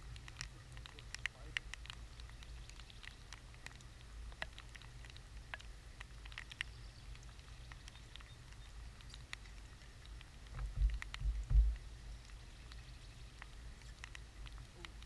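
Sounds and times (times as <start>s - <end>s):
raindrops ticking on camera: 0.0s - 15.0s
steady low rumble: 8.6s - 13.8s.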